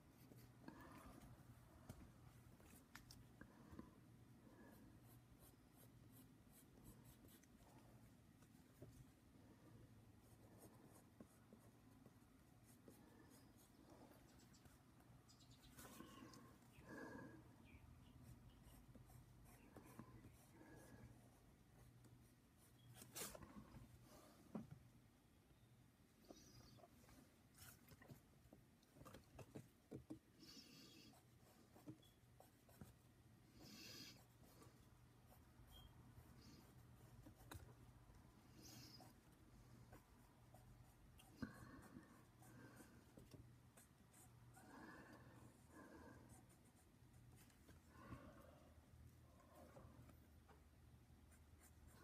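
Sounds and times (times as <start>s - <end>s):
pen scratching on paper: 35.3s - 37.7s.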